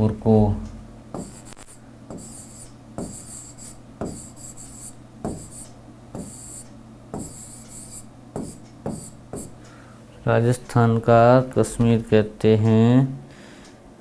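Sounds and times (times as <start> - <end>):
low steady hum: 0.0 - 14.0
stylus tapping and scratching screen: 1.2 - 9.6.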